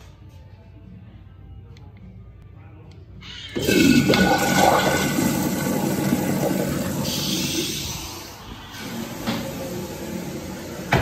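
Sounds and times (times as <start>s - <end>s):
urinal flushing: 3.6s - 11.0s.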